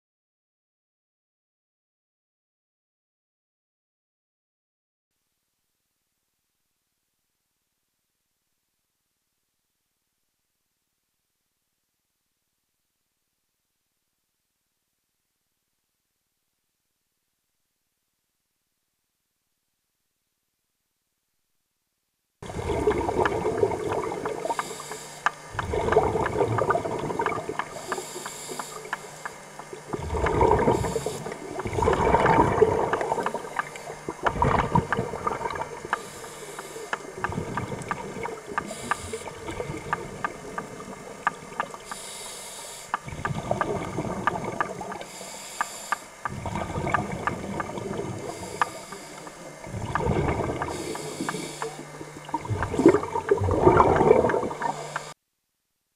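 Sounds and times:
bubbling on exhale: 22.4s - 42.0s, 42.9s - 55.1s
regulator hiss on inhale: 23.8s - 31.8s, 35.0s - 53.4s, 54.4s - 55.2s.

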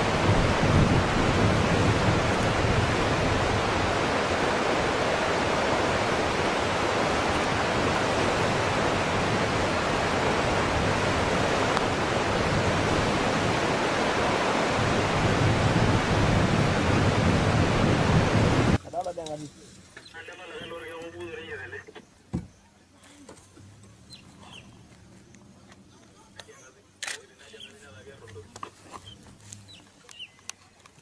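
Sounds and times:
loud rushing noise: 0.0s - 18.8s.

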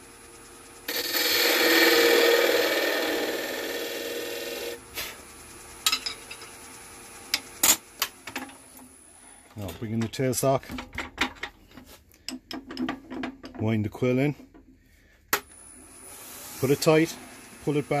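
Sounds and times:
lathe tool scraping wood: 0.9s - 4.8s.

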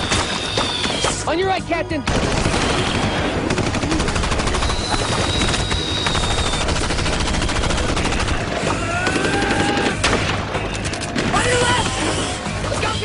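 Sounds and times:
rapid automatic gunfire: 0.0s - 1.2s, 2.1s - 12.1s.

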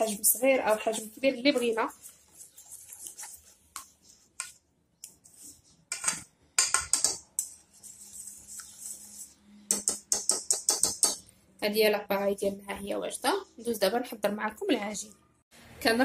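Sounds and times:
whisk clinking in metal bowl: 9.7s - 11.2s.

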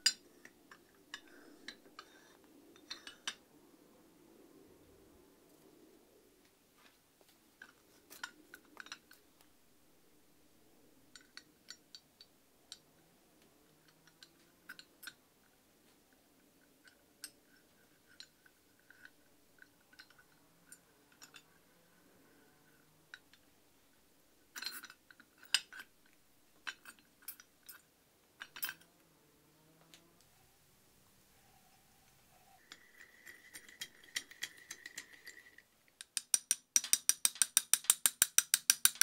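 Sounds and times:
metal clicks and knocks: 32.7s - 39.0s.

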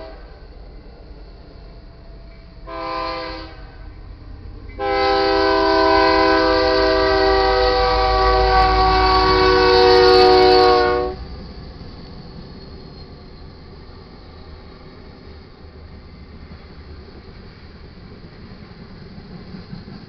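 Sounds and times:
locomotive air horn blasts: 0.0s - 0.3s, 2.6s - 3.8s, 4.8s - 11.2s.

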